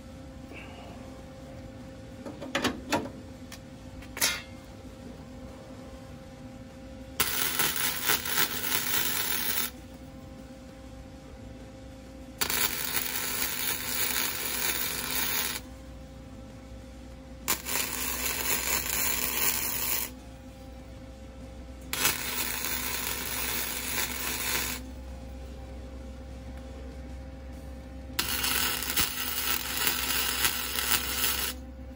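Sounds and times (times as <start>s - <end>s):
low steady hum: 0.0s - 31.9s
welder arc crackling: 7.2s - 9.8s, 12.4s - 15.7s, 17.5s - 20.2s, 21.9s - 24.9s, 28.2s - 31.6s.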